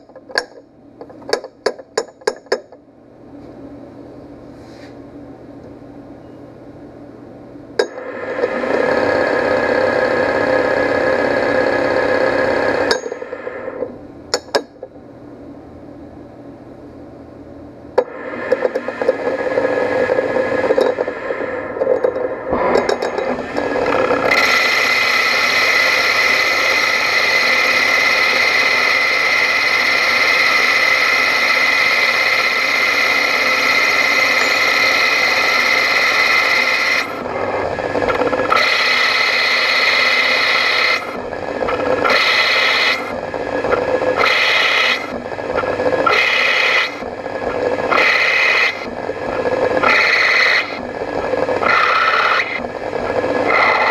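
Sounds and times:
lathe cutting brass rod: 7.8s - 13.9s, 18.0s - 53.9s.

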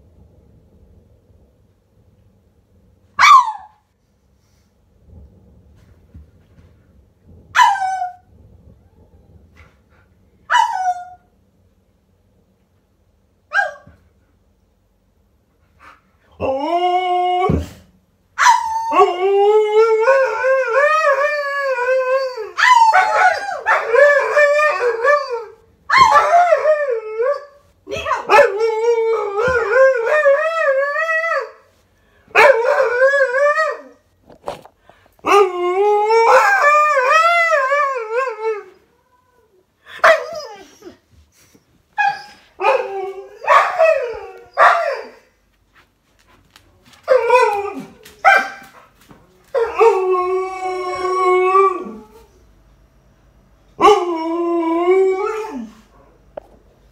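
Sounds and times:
dog yipping: 3.2s - 3.7s
dog howling: 35.2s - 40.9s.

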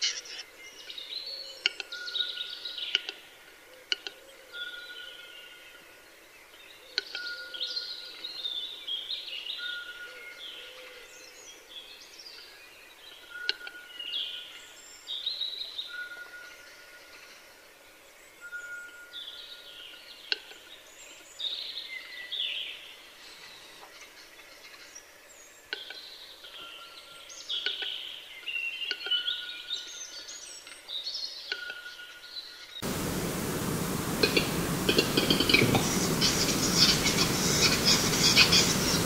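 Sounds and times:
songbirds singing: 0.0s - 39.0s
noisy rustle: 32.8s - 39.0s
bird sharp clicks: 32.9s - 39.0s.

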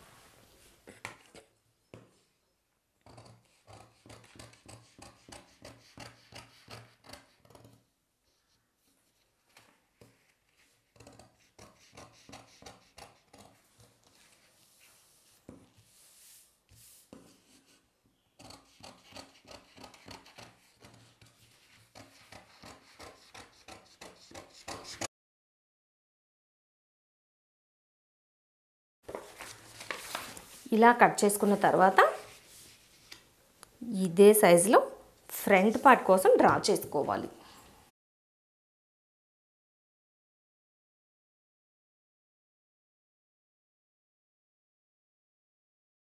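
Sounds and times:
paper rustling: 29.1s - 30.8s.

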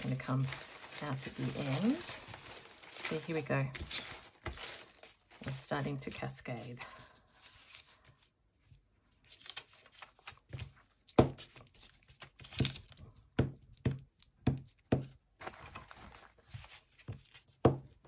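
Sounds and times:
paper rustling: 0.0s - 13.2s, 15.4s - 17.6s.

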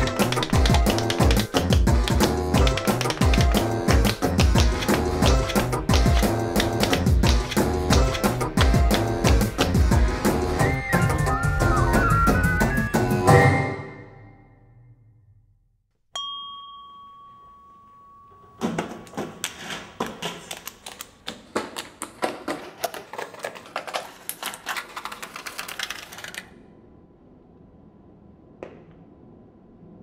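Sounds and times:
rapid sharp clicks and taps: 0.0s - 10.1s
sharp ringing ping: 16.1s - 18.6s.

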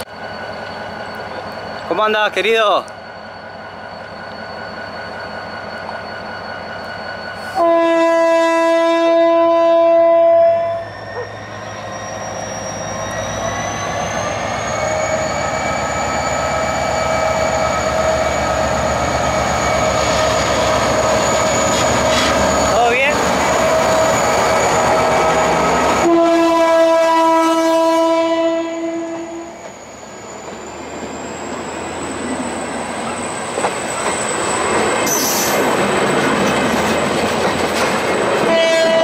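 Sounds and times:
locomotive horn blast: 7.5s - 10.9s, 26.0s - 29.5s, 38.5s - 39.0s
locomotive engine: 10.8s - 27.4s, 28.8s - 39.0s.

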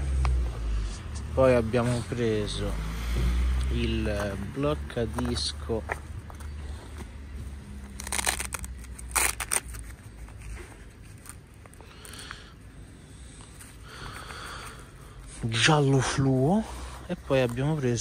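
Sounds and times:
rustling of pouch: 5.0s - 18.0s.

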